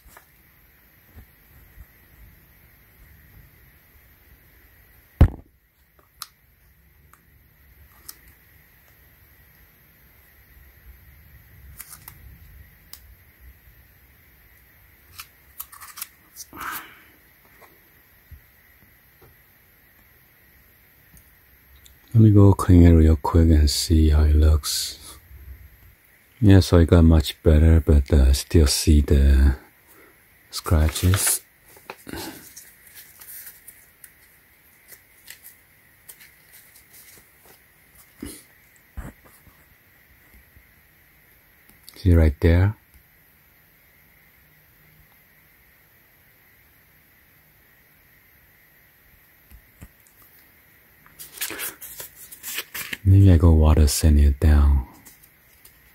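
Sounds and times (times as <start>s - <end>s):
tape peeling clicks and crackles: 7.9s - 9.0s, 11.7s - 13.1s, 15.1s - 16.4s, 30.9s - 38.1s, 51.1s - 53.0s.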